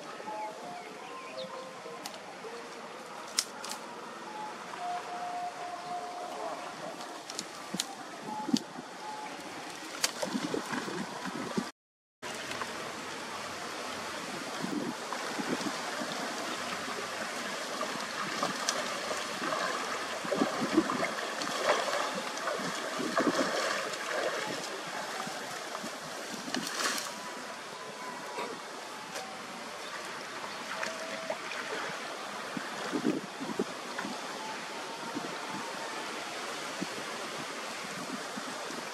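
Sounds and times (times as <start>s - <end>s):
water splashing and gurgling: 4.3s - 38.9s
person wading through water: 6.6s - 11.7s, 13.8s - 27.7s.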